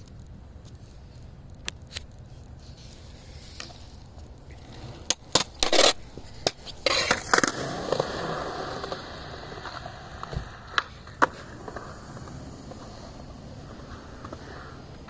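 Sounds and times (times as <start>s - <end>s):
skateboard wheels rolling: 0.0s - 15.0s
skateboard clacking on concrete: 3.0s - 15.0s.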